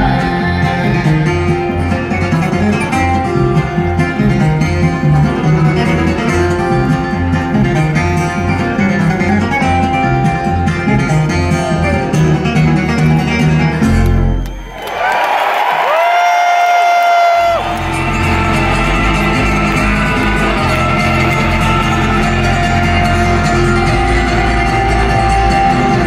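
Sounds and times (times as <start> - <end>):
bluegrass band playing: 0.0 - 14.2, 17.4 - 26.0
crowd cheering and whistling: 11.8 - 26.0.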